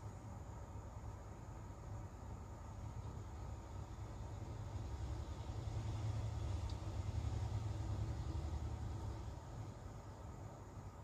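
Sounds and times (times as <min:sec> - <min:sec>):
faint even hiss: 0:00.0 - 0:11.0.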